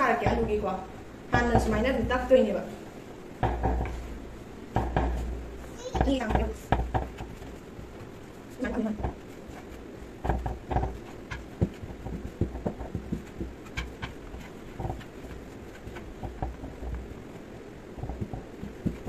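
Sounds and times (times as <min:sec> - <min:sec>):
knife tapping on wooden board: 0:05.9 - 0:07.4.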